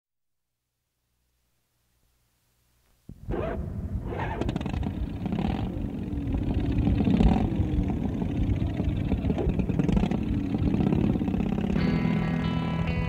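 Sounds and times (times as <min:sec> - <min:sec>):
motorcycle engine revving: 0:03.3 - 0:13.0.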